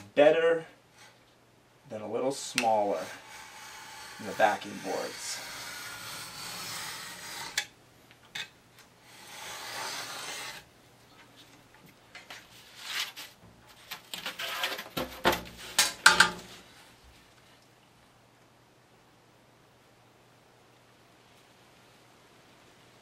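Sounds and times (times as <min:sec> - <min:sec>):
knife scratching through board: 0:02.7 - 0:07.6, 0:09.1 - 0:10.7
scrapes and rustles: 0:09.1 - 0:17.7.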